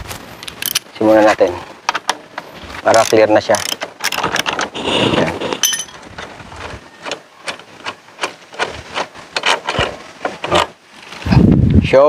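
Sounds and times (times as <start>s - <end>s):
metal scraping: 2.2s - 10.8s.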